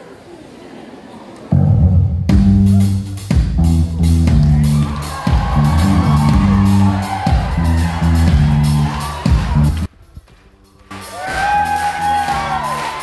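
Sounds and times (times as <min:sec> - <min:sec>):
band playing loudly: 0:01.5 - 0:09.9.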